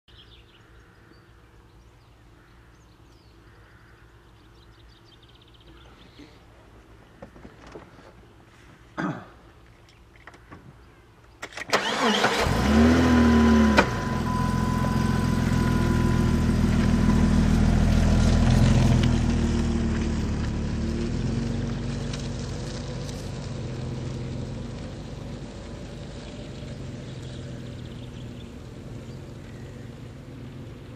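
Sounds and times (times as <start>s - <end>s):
engine starting and running: 11.4s - 21.3s.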